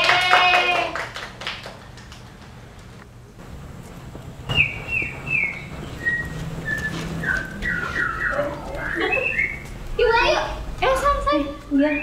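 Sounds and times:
sharp knock: 4.5 - 7.4
short whistled notes: 4.5 - 9.6.

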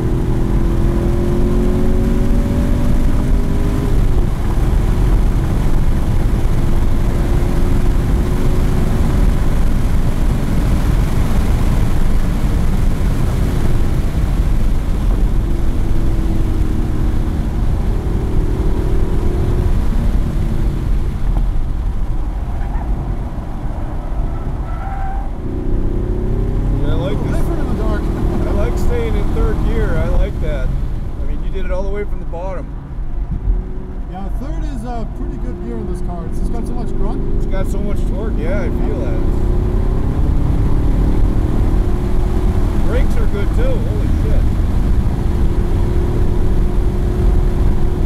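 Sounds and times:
race car engine at high revs: 0.0 - 48.0
road noise: 0.0 - 48.0.

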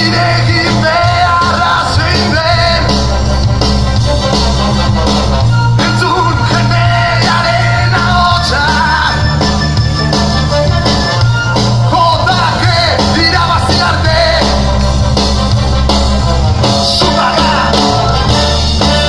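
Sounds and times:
man singing into a microphone: 0.0 - 3.0, 5.8 - 9.4, 11.9 - 14.7, 16.9 - 19.0
live band with flutes: 0.0 - 19.0
repeating bass line: 0.0 - 19.0.

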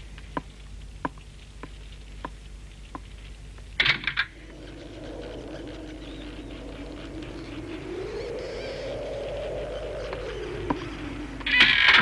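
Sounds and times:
low wavering tone: 4.3 - 12.0.

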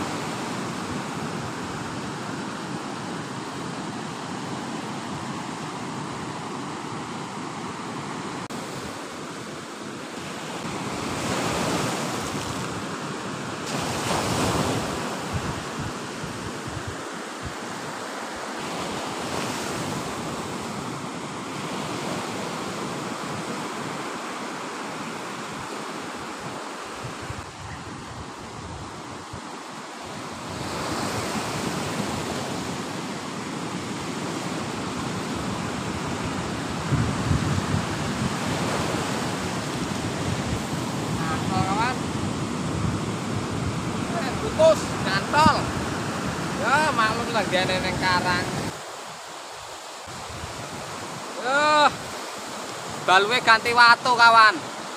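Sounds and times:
ocean surf breaking: 0.0 - 54.9
wind buffeting microphone: 14.2 - 17.6, 35.1 - 48.7.

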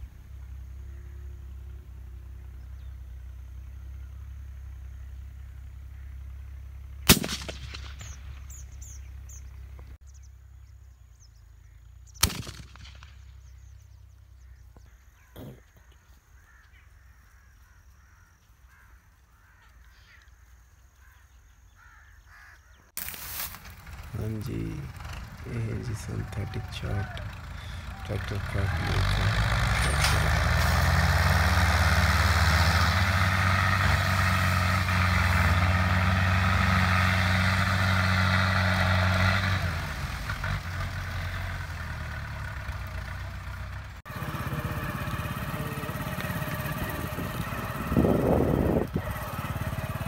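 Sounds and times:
birds calling: 0.0 - 50.0
gunshots with echo: 7.1 - 8.2, 12.2 - 13.1.

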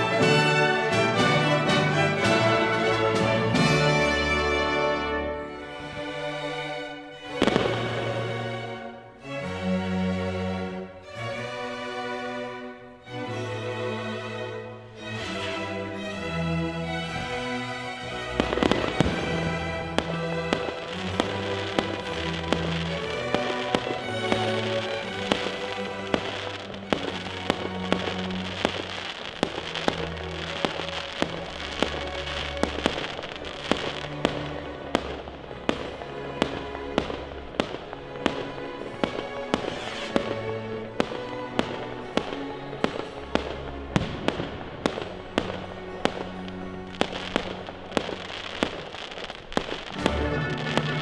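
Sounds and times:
fireworks bursting: 7.2 - 8.6, 18.2 - 51.0.

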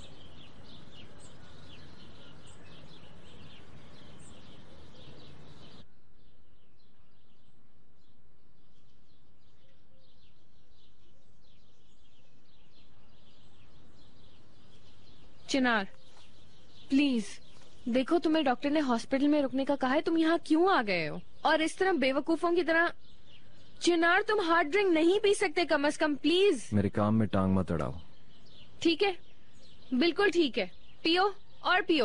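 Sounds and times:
outdoor background hiss: 0.0 - 32.0
small birds chirping: 0.0 - 32.0.

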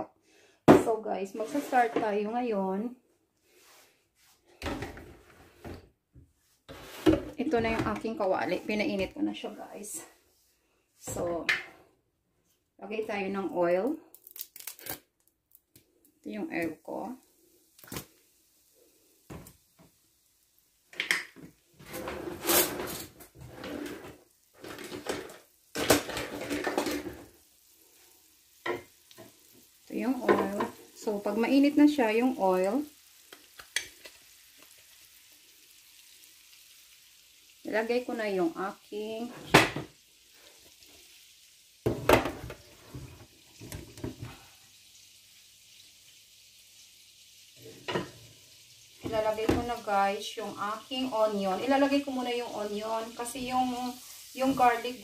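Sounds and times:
faint steady hiss: 0.0 - 55.0
cookware rubbing and clattering: 1.4 - 2.3, 6.7 - 9.6, 21.8 - 27.3.

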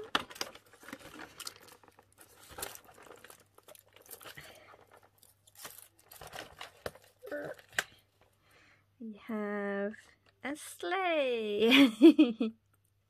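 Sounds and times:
paper rustling and crinkling: 0.0 - 8.0.

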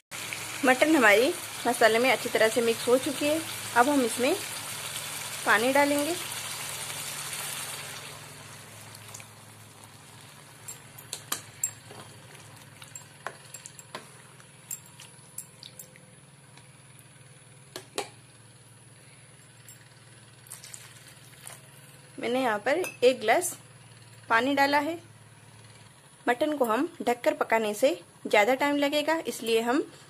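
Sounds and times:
simmering pan hiss: 0.2 - 11.8.

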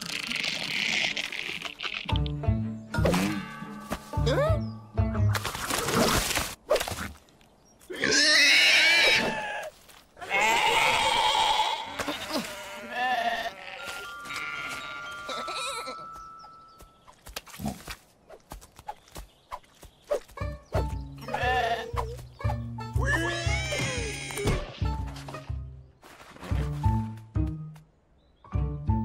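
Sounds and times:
cartoon sheep bleating: 8.0 - 16.0, 21.3 - 22.0, 23.0 - 24.5.

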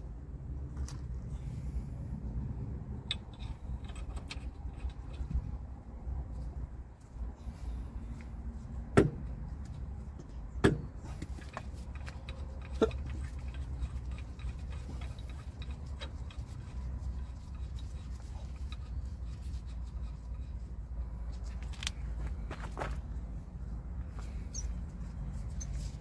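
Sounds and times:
steady low rumble: 0.0 - 26.0
light metal clicks and clinks: 3.0 - 5.4, 11.1 - 20.6, 24.2 - 25.9.

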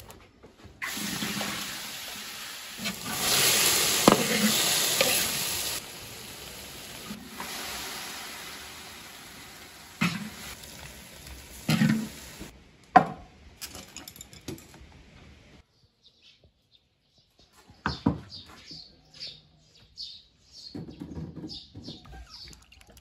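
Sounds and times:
fruit sizzling in a wok: 0.8 - 12.5.

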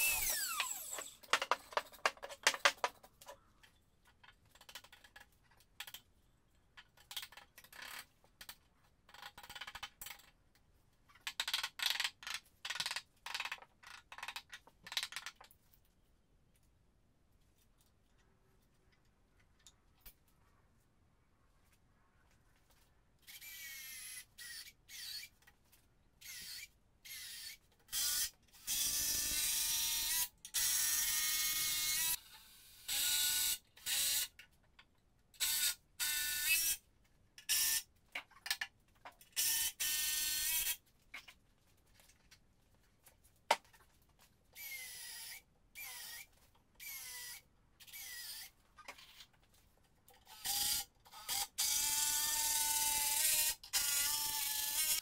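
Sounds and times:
power drill whining in bursts: 0.0 - 1.2.

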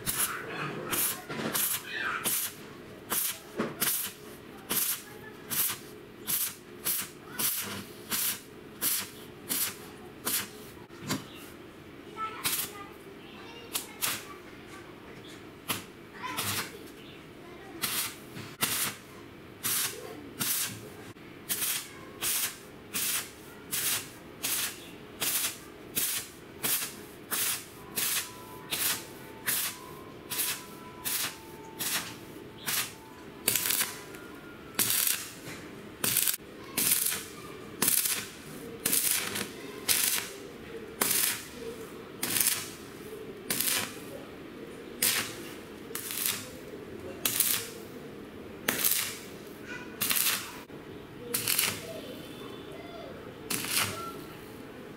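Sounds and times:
welding arc crackling and spitting: 0.0 - 10.6, 12.4 - 12.8, 13.7 - 14.3, 15.7 - 16.8, 17.8 - 20.8, 21.5 - 34.0, 34.8 - 35.4, 36.0 - 40.4, 41.0 - 41.6, 42.2 - 44.0, 45.0 - 47.9, 48.6 - 49.4, 50.0 - 50.6, 51.3 - 51.9, 53.5 - 54.1.

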